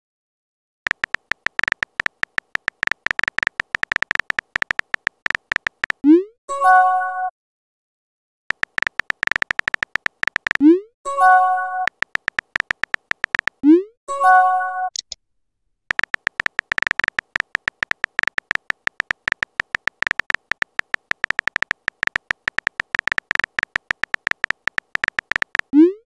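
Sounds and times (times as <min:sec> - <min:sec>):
keyboard tap clicks: 0:00.9 - 0:06.0, 0:08.5 - 0:10.6, 0:11.9 - 0:13.6, 0:15.9 - 0:25.7.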